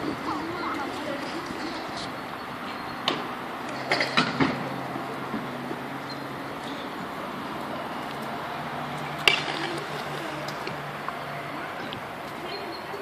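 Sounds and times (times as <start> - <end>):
skateboard clack: 9.0 - 11.2.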